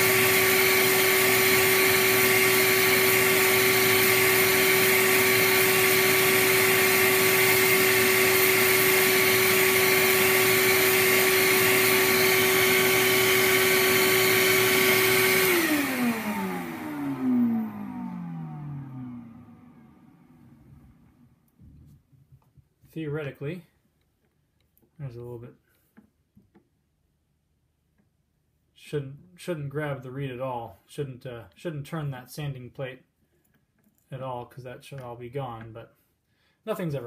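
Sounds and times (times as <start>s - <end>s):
machine spinning down: 0.0s - 21.1s
sanding machine whirring: 0.0s - 21.4s.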